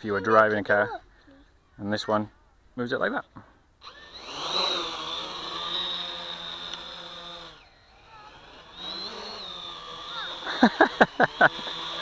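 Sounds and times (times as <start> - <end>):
quadcopter motors whining: 3.8 - 12.0.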